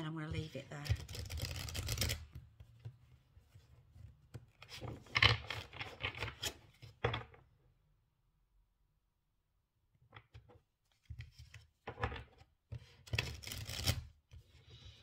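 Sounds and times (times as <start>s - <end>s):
cards being shuffled by hand: 0.3s - 7.2s, 10.3s - 14.6s.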